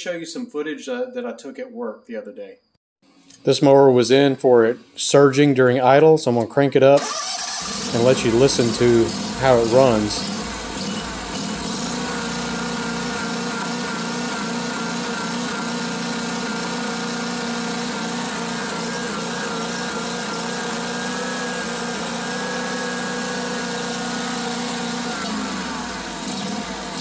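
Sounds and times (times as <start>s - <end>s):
mower engine running at full throttle: 7.0s - 27.0s.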